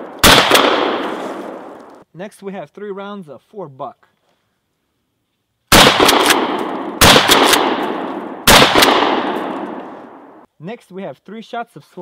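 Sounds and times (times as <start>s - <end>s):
shotgun blasts: 0.0s - 1.8s, 5.7s - 10.4s.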